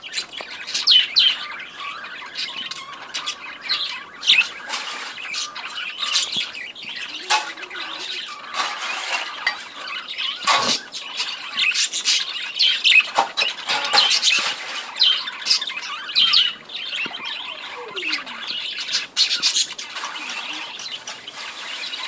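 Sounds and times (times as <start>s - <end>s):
budgerigars chattering: 0.0s - 22.0s.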